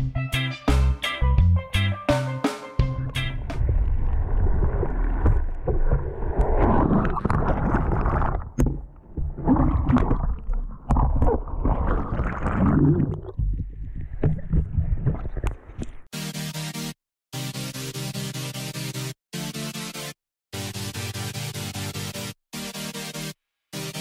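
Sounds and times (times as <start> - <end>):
water sloshing and gurgling: 3.4 - 16.1.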